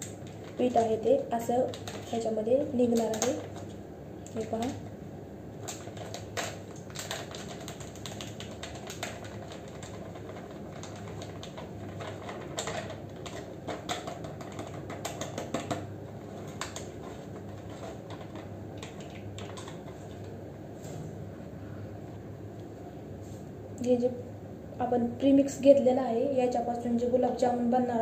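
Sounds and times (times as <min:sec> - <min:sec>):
foil packet crinkling: 0:05.6 - 0:19.9.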